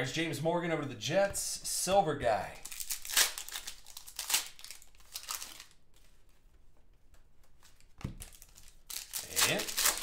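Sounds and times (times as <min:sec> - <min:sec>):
cards rustling and flicking: 0:07.4 - 0:10.0.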